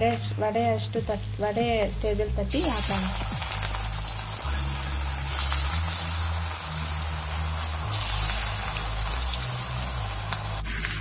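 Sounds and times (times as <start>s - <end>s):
fritter sizzling in hot oil: 2.5s - 11.0s.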